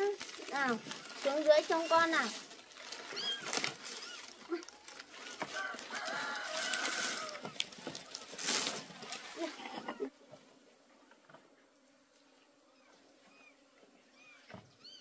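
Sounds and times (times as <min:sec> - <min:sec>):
rustling: 0:00.0 - 0:09.9.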